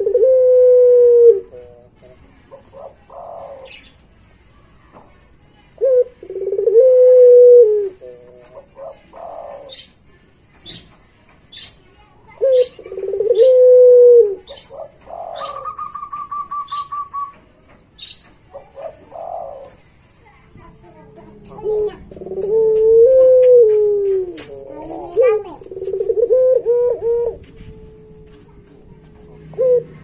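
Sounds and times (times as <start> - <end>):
dove cooing: 0.0 - 3.8, 5.8 - 10.0, 12.3 - 17.4, 18.0 - 19.8, 20.9 - 30.0
bird trill: 14.4 - 17.3, 18.0 - 19.6.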